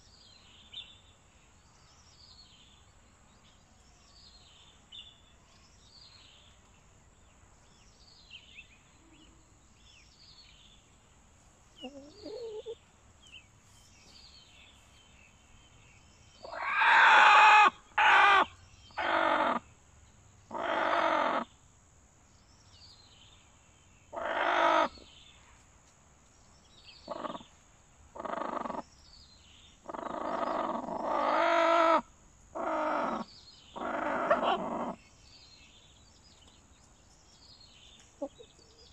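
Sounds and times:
small bird chirping: 11.7 - 16.7, 26.4 - 38.9
chickens calling harshly: 16.4 - 19.6, 24.1 - 25.0, 32.6 - 35.0.

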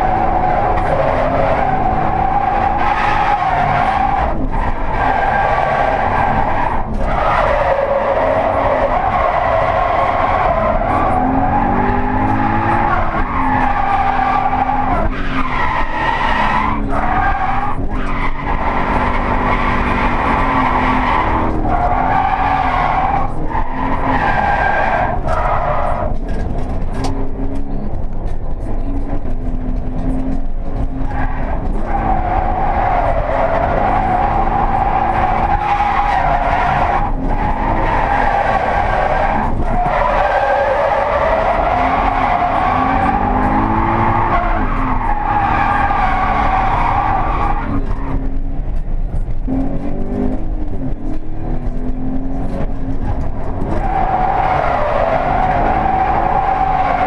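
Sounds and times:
car engine revving hard: 0.0 - 27.9, 28.8 - 57.0
tyres squealing: 31.0 - 48.3, 53.2 - 57.0.

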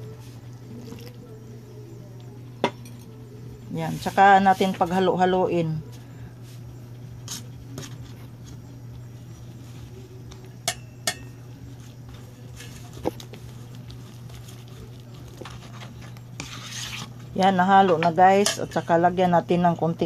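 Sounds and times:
fork scraping in a bowl: 7.2 - 8.2, 14.6 - 17.4
fork clinking against metal bowl: 10.6 - 11.4, 18.0 - 18.9.

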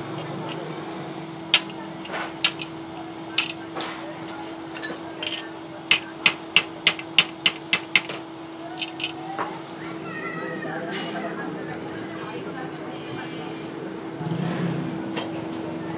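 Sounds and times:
steady low hum: 0.0 - 10.2
hammer striking steel on anvil: 1.5 - 2.8, 3.4 - 8.2.

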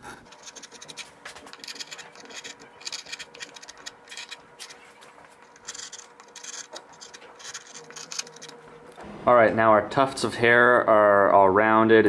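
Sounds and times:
gouge scraping wood: 0.2 - 8.6.

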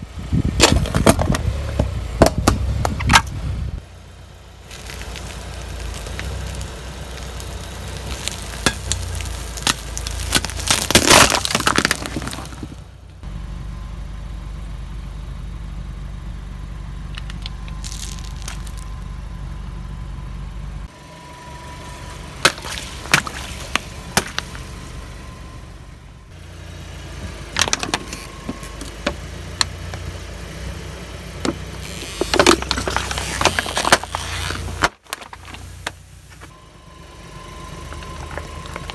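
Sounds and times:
car engine idling: 0.0 - 38.9
tyre crushing objects: 8.1 - 12.8, 17.7 - 18.8, 22.4 - 24.6, 31.5 - 36.5.

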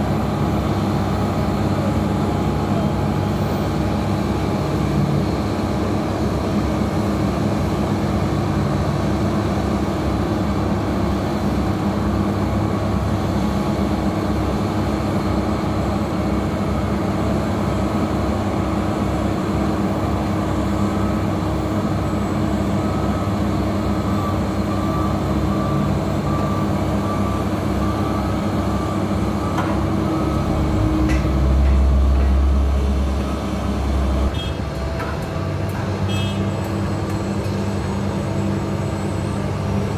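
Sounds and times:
construction machinery engines running: 0.0 - 39.9
low engine rumble: 24.1 - 39.9.

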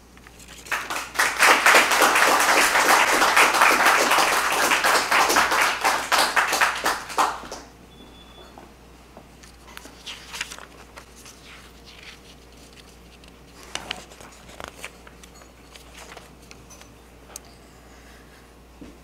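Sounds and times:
paper pages rustling and turning: 0.1 - 1.0, 9.4 - 16.6.

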